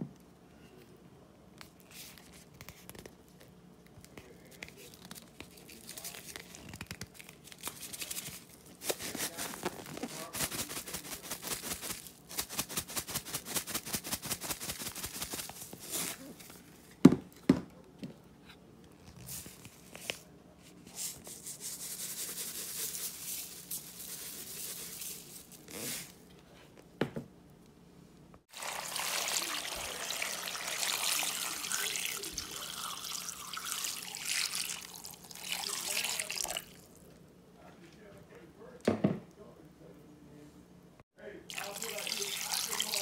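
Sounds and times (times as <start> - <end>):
water running from a faucet: 28.5 - 36.8, 41.5 - 43.0.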